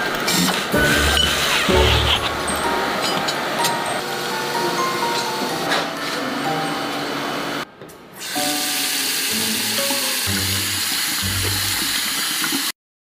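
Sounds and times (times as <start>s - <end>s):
background music: 0.3s - 7.6s, 8.3s - 12.1s
water running from a faucet: 8.2s - 12.8s.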